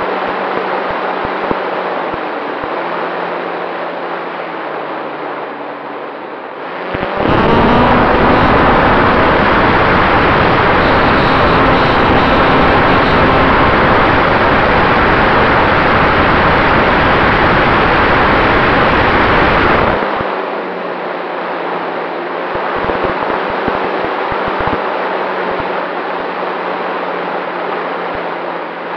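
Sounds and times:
steady low hum: 0.0s - 26.1s
wind rushing over camera: 6.7s - 20.4s, 22.5s - 26.0s.

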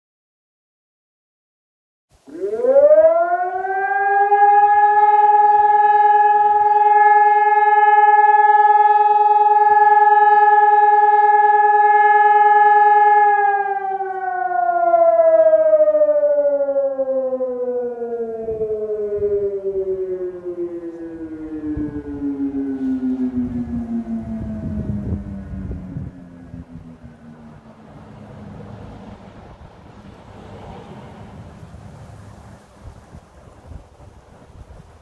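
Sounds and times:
electronic siren alarm: 2.3s - 28.1s.

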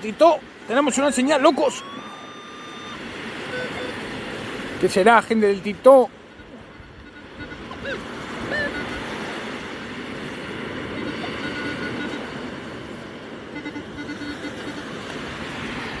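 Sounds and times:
surf: 0.0s - 16.0s
wind: 0.0s - 16.0s
metal detector beeps: 1.5s - 4.0s, 6.4s - 9.2s, 10.8s - 12.5s, 13.5s - 15.0s.

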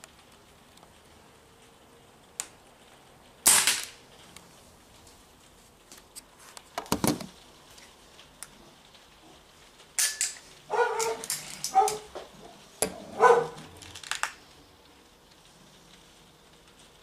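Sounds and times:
dog barking: 10.7s - 13.7s.

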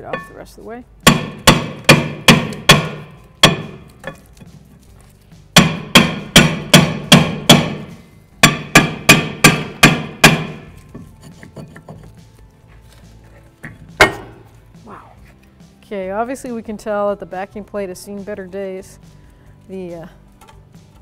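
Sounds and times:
hammer striking metal rotor: 5.6s - 10.7s.

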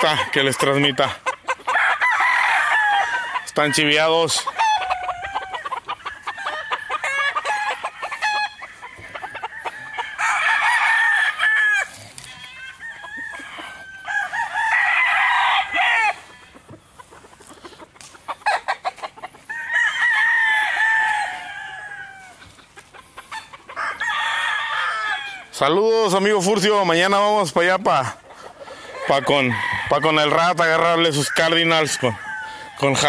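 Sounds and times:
rooster clucking: 0.0s - 33.0s
roosters crowing: 0.0s - 33.0s.

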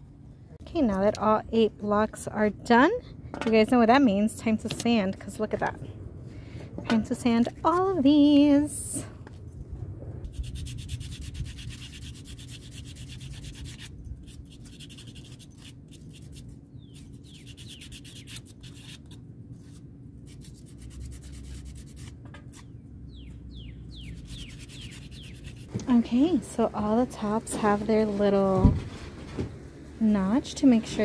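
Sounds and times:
sandpaper scratching wood: 10.3s - 22.7s, 24.0s - 25.8s.

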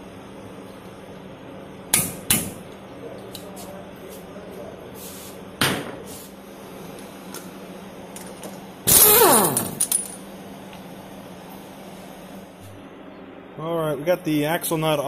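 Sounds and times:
impact wrench whine: 8.9s - 10.2s.

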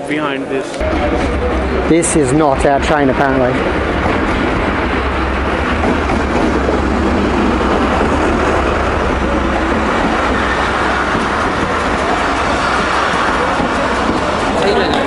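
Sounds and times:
diesel locomotive engine humming: 0.7s - 15.0s
train wheels clattering on track: 0.8s - 15.0s.

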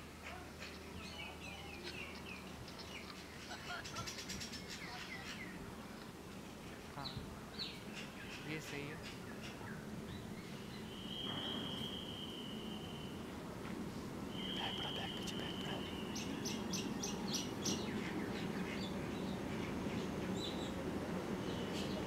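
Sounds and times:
birds chirping: 0.0s - 13.3s, 14.2s - 22.0s
long high whistle: 10.9s - 13.2s
train rumbling: 13.3s - 22.0s.

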